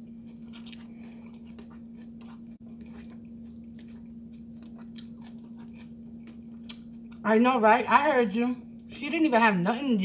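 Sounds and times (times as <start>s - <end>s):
person chewing food: 0.0s - 7.2s
steady low hum: 0.0s - 10.0s.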